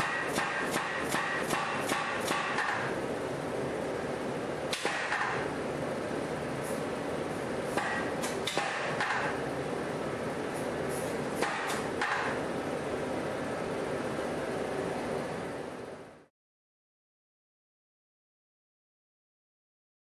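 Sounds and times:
power hammer striking steel: 0.0s - 3.0s, 4.7s - 5.5s, 7.8s - 9.4s, 11.4s - 12.4s
steady background noise: 0.0s - 16.3s.

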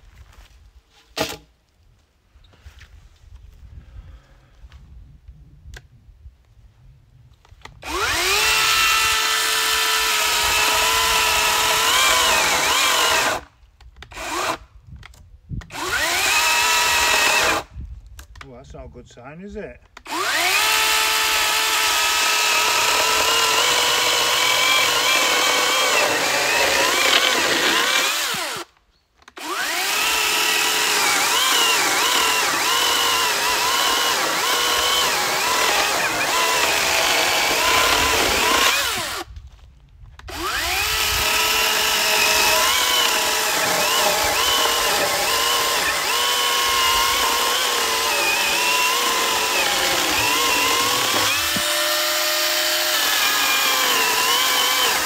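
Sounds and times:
electric chainsaw cutting log: 7.8s - 14.6s, 15.7s - 17.7s, 20.0s - 28.7s, 29.3s - 39.3s, 40.2s - 55.0s.

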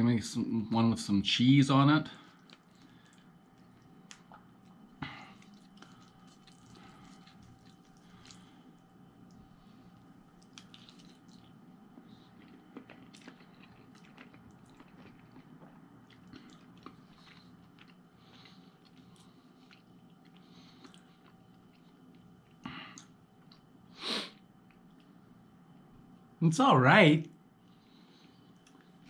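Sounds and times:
low room hum: 0.0s - 29.0s
person chewing food: 2.3s - 23.8s, 27.8s - 29.0s.

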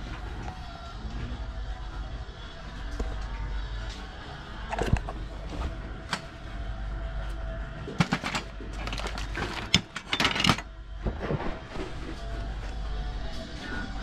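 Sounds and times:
hand tools clinking and knocking: 7.9s - 10.7s.

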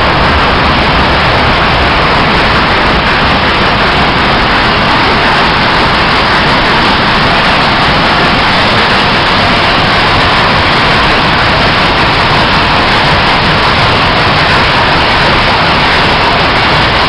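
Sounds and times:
textile machinery din: 0.0s - 17.0s.

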